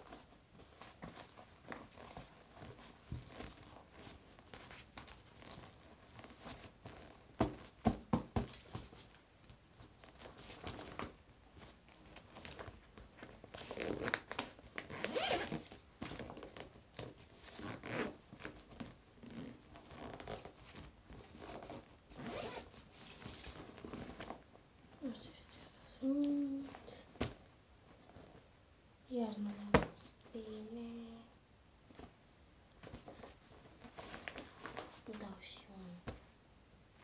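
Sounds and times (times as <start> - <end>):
bag fabric rustling: 0.0 - 7.3, 9.8 - 25.0, 32.8 - 35.1
bag zipper pulled: 14.9 - 15.6, 21.4 - 22.7.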